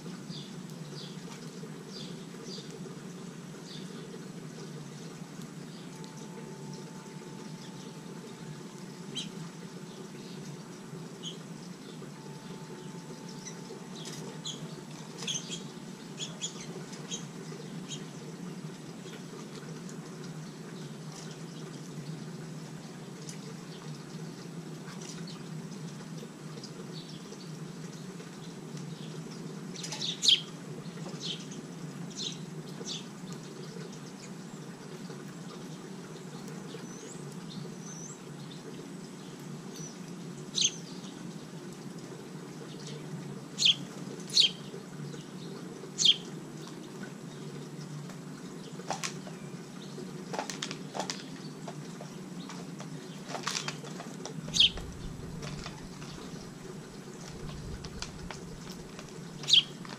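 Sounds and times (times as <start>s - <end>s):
steady low hum: 0.0s - 21.2s, 53.9s - 59.9s
songbirds chirping: 0.0s - 59.9s.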